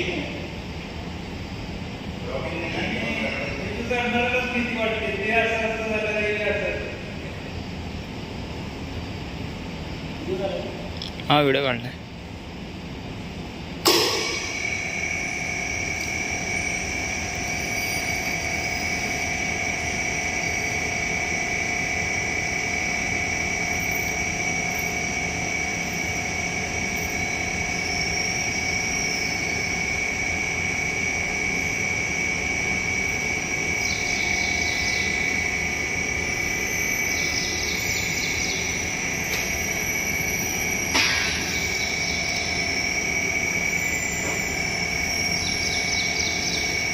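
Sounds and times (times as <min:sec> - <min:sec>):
lift motor whining: 0:13.8 - 0:46.9.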